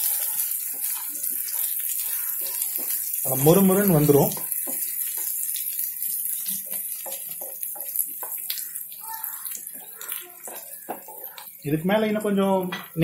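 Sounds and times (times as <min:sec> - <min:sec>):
shrimp sizzling in a pan: 0:00.0 - 0:13.0
wooden spatula scraping a pan: 0:06.1 - 0:08.7, 0:09.5 - 0:11.6.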